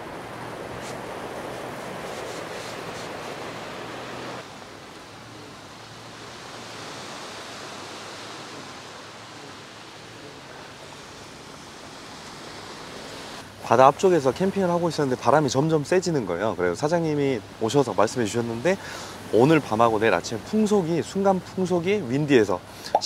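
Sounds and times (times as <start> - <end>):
sea waves rushing: 0.0 - 23.0
wind: 0.0 - 23.0.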